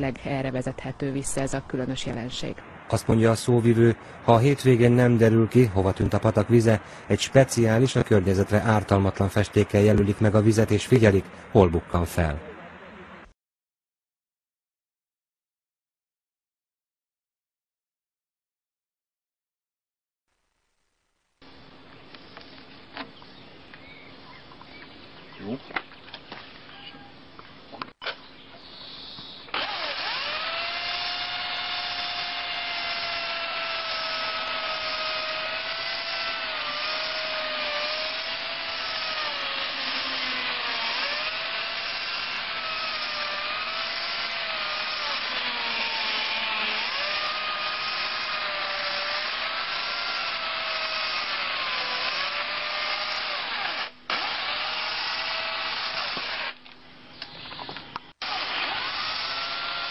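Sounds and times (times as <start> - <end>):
electric chainsaw cutting wood: 29.5 - 56.6, 58.2 - 59.9.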